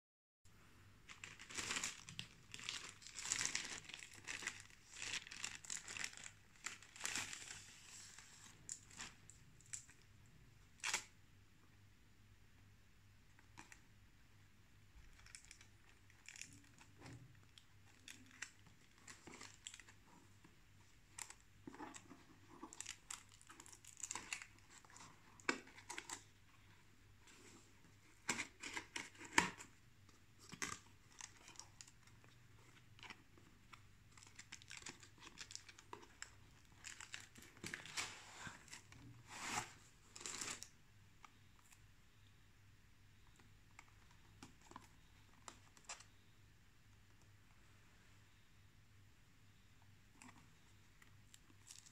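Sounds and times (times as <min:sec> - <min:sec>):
cardboard and paper rustling: 0:30.3 - 0:40.7.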